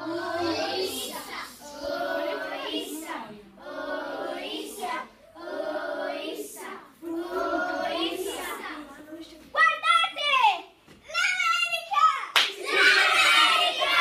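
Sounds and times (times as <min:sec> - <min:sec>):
children singing: 0:00.0 - 0:08.9, 0:12.6 - 0:14.0.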